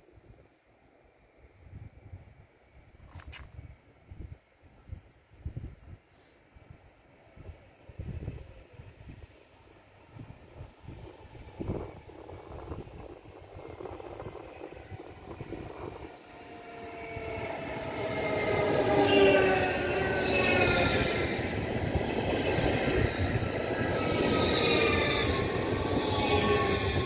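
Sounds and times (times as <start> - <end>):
electric train whining: 8.1 - 27.0
train wheels rumbling on rails: 10.0 - 27.0.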